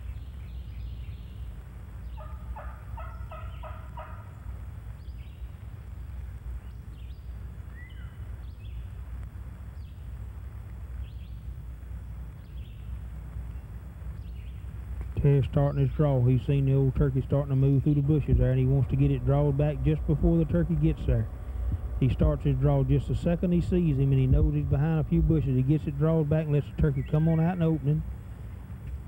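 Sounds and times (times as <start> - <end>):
songbird chirps: 0.0 - 28.1
low background rumble: 0.0 - 29.0
turkey gobbling: 2.2 - 4.3.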